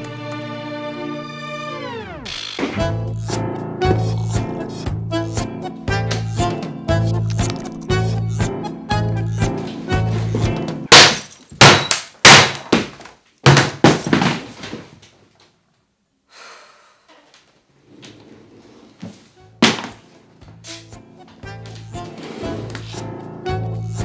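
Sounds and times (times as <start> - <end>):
jazz music with upright bass: 2.3 - 10.9, 19.0 - 24.0
laptop being smashed: 10.9 - 14.5.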